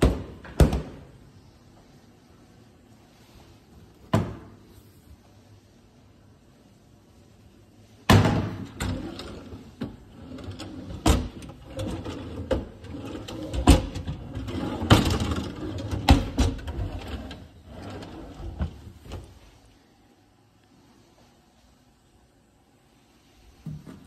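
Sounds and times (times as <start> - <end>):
wooden drawers sliding: 8.5 - 19.6.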